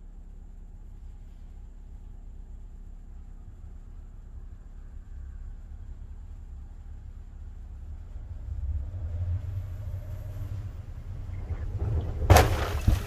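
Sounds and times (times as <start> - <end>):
car engine rumbling low: 0.0 - 13.0
loud crunch of snow blocks: 12.2 - 13.0.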